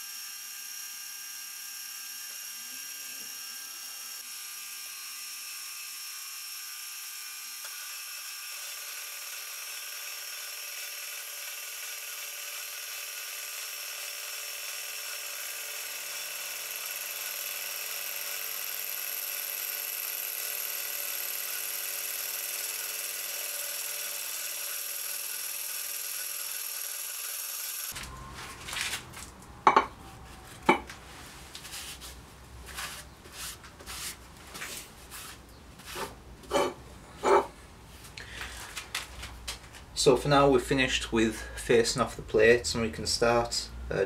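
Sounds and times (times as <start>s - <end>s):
milling machine cutting steel: 6.6s - 28.0s.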